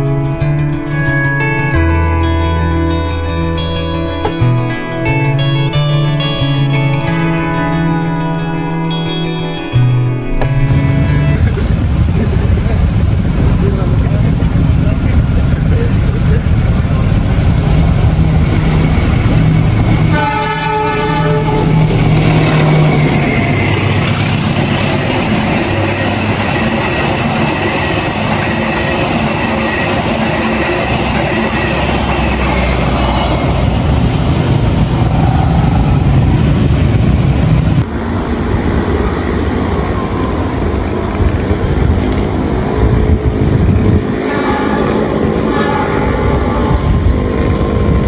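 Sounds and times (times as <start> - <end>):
locomotive engine droning: 0.0 - 48.0
train rumble: 10.7 - 48.0
train horn: 20.0 - 22.2, 42.9 - 47.4
train wheels clattering on rails: 21.5 - 37.0.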